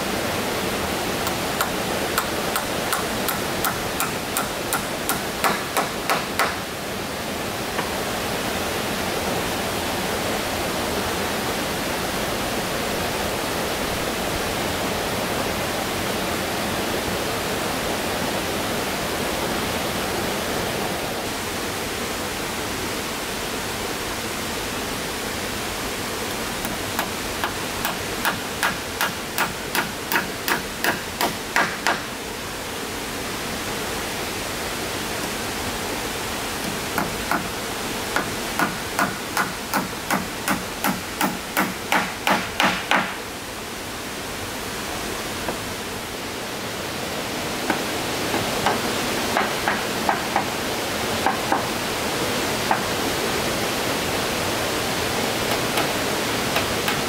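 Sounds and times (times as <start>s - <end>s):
hammer driving nails into wood: 1.6s - 6.6s, 26.6s - 32.1s, 38.2s - 43.2s.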